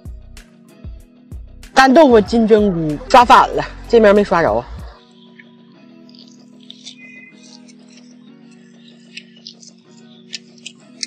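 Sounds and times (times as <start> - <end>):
background music of held chords: 0.0 - 11.0.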